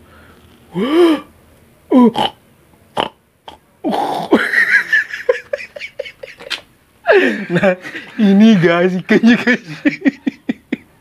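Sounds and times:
man laughing: 0:04.3 - 0:11.0.

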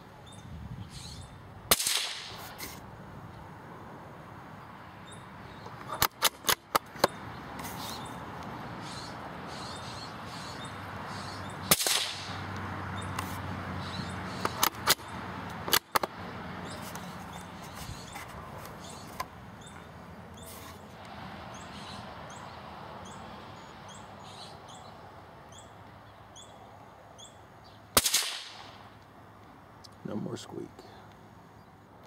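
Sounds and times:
gunshot crack: 0:01.7 - 0:02.4, 0:11.7 - 0:12.3, 0:28.0 - 0:28.7
sharp clicks: 0:05.6 - 0:07.2, 0:14.4 - 0:16.2.

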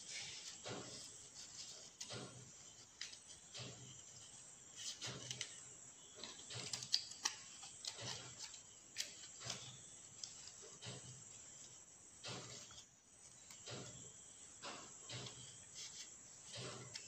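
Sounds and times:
paper rustling and crinkling: 0:00.0 - 0:14.0
paper clicks: 0:00.3 - 0:11.2.

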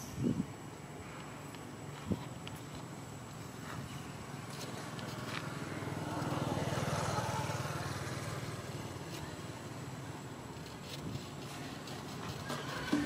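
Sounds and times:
passing vehicle engine: 0:03.1 - 0:13.0.

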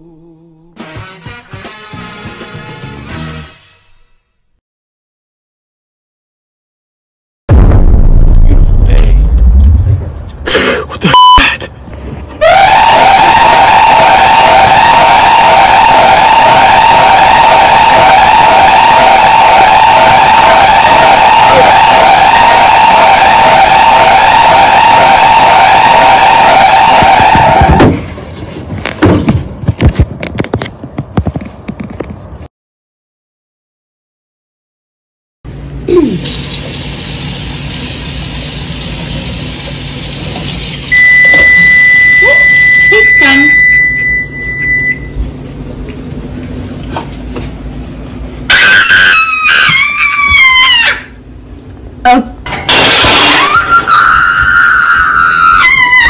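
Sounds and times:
high-pitched scream sliding down: 0:12.4 - 0:27.9, 0:48.5 - 0:51.1, 0:53.4 - 0:56.0
clattering knocks and thuds: 0:28.8 - 0:32.2.

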